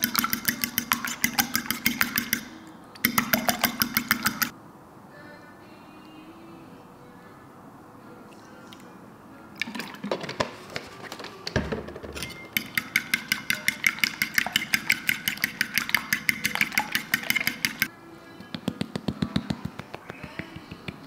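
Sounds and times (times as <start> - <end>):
fork clinking against bowl: 0.0 - 4.5, 12.2 - 17.9.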